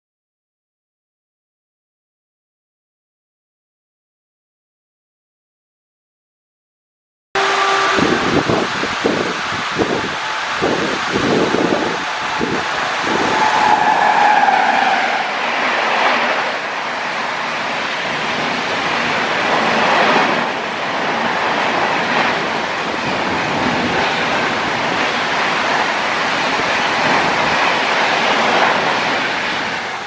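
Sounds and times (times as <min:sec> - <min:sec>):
steady tone: 0:07.4 - 0:16.7
rain hissing: 0:07.4 - 0:30.0
train wheels rushing on rail: 0:07.4 - 0:30.0.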